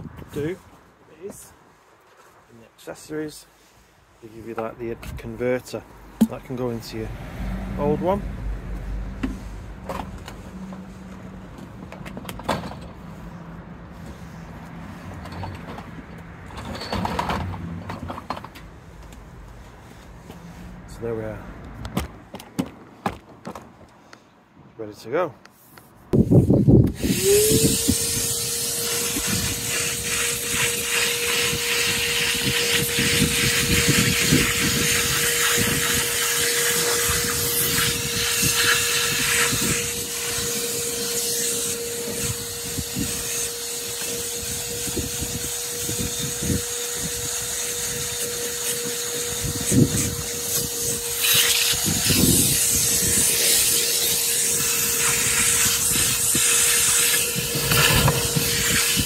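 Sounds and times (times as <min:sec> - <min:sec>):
rush of air: 0:06.0 - 0:11.5, 0:26.1 - 0:43.3, 0:49.4 - 0:59.0
wet and dry vacuum motor whining: 0:26.7 - 0:59.0.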